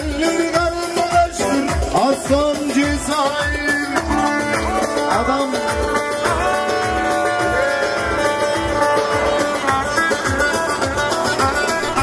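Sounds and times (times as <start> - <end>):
man singing into a microphone: 0.0 - 8.3
steady beat: 0.0 - 12.0
long-necked lute playing: 2.6 - 12.0.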